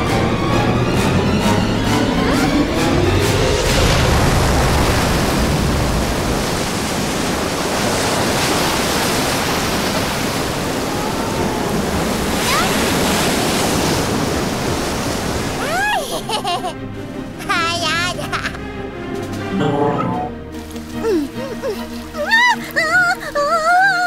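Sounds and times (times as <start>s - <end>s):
cartoon water rushing: 2.0s - 16.8s.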